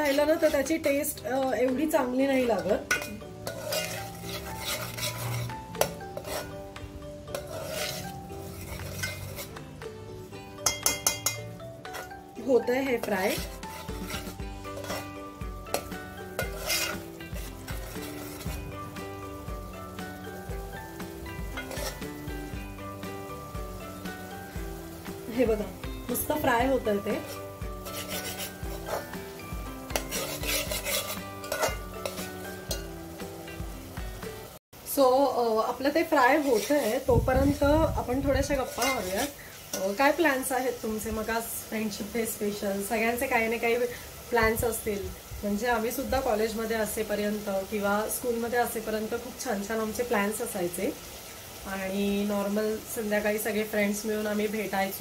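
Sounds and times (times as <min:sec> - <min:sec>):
ladle scraping a pot: 0:00.0 - 0:00.8, 0:02.8 - 0:06.6, 0:07.3 - 0:09.6, 0:10.6 - 0:12.2, 0:13.0 - 0:18.8, 0:21.5 - 0:22.1, 0:27.2 - 0:32.9, 0:36.4 - 0:37.6, 0:38.4 - 0:39.9
background music with steady beat: 0:00.0 - 0:34.6
paste frying in oil: 0:00.0 - 0:55.0.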